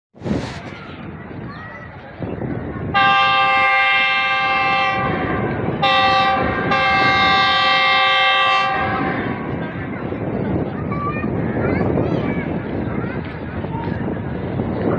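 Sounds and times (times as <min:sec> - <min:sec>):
low rumble of moving train: 0:00.2 - 0:14.9
locomotive air horn blasts: 0:02.9 - 0:09.5.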